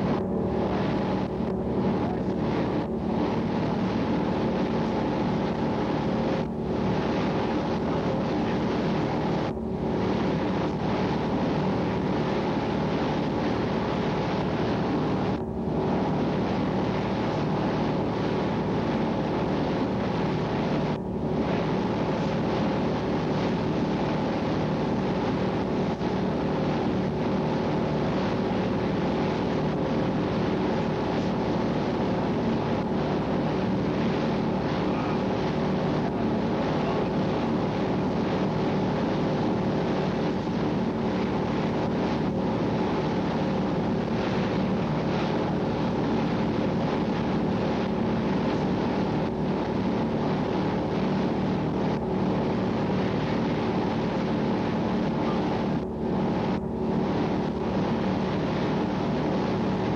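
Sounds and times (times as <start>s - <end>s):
boat engine droning: 0.0s - 59.9s
wind on microphone: 0.0s - 59.9s.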